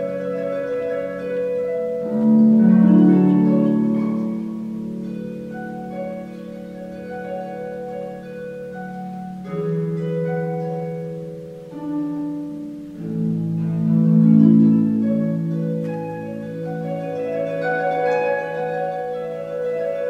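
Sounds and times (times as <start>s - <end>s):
harp plucked notes: 0.0s - 20.0s.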